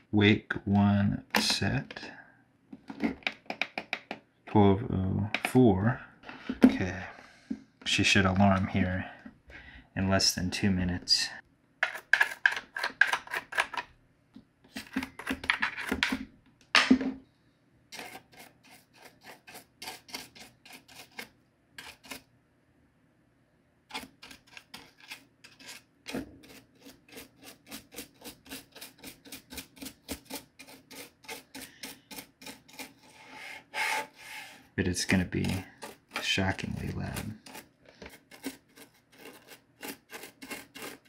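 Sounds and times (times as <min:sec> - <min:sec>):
toothbrush scrubbing plastic: 0:18.0 - 0:22.2, 0:23.9 - 0:33.3, 0:35.0 - 0:41.0.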